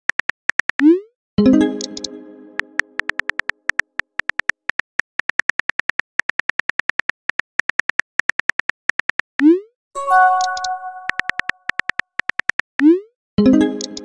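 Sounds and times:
smartphone keyboard clicks: 0:02.8 - 0:09.3
ringing tone: 0:10.0 - 0:11.4.

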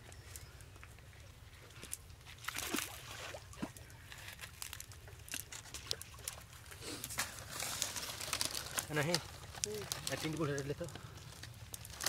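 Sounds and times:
net rustling against grass: 0:06.4 - 0:12.0.

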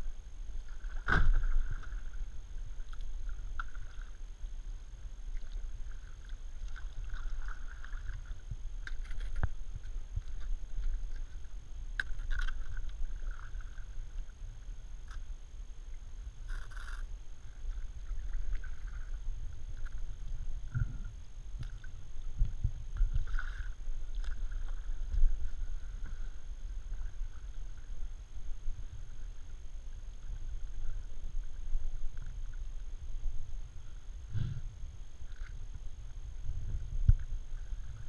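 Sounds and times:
steady low rumble: 0:00.0 - 0:38.0
kayak paddle splashing: 0:00.6 - 0:04.5, 0:05.2 - 0:14.4, 0:21.6 - 0:32.1.

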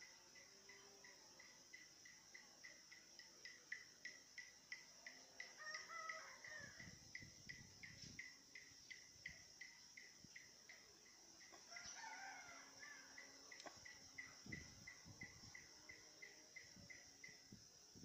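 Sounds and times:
high insect drone: 0:00.0 - 0:18.0
rooster crowing faintly: 0:05.2 - 0:07.0, 0:11.5 - 0:15.9.

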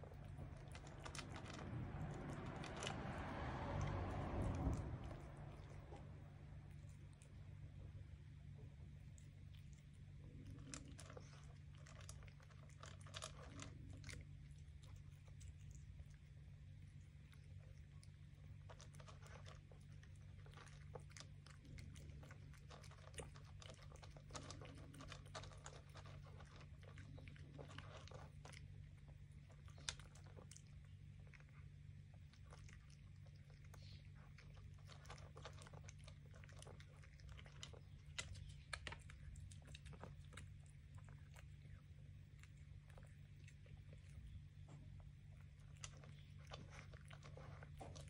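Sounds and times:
cat chewing food: 0:00.0 - 0:48.0
steady low hum: 0:00.0 - 0:48.0.

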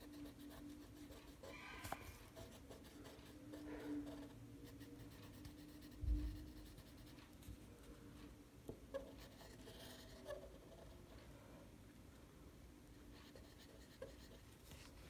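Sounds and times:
marker scratching on paper: 0:00.0 - 0:07.6, 0:08.9 - 0:11.1, 0:13.1 - 0:15.0
faint steady hum: 0:00.0 - 0:15.0.

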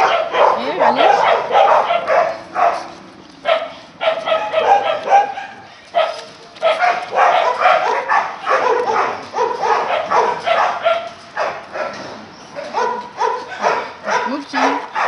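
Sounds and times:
dogs barking: 0:00.0 - 0:15.0.

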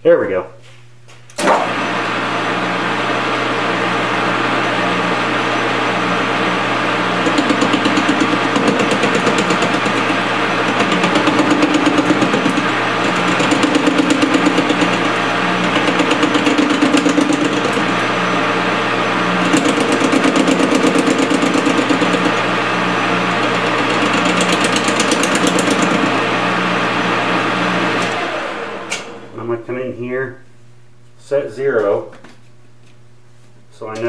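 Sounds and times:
metal lathe cutting: 0:01.4 - 0:29.3
rapid pulsing tool chatter: 0:06.9 - 0:18.4, 0:19.1 - 0:26.2.

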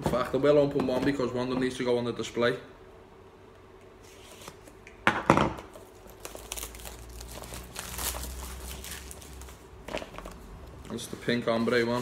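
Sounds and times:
cellophane ripping: 0:05.7 - 0:10.4
cellophane crinkling: 0:05.7 - 0:12.0.

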